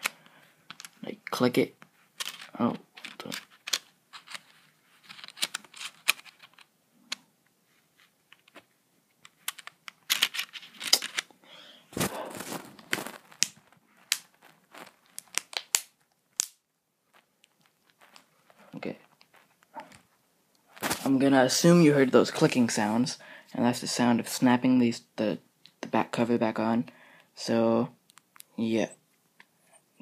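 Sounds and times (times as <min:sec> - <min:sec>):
handling rustle: 0:01.8 - 0:06.7, 0:07.7 - 0:11.3, 0:11.9 - 0:16.2, 0:17.1 - 0:23.0.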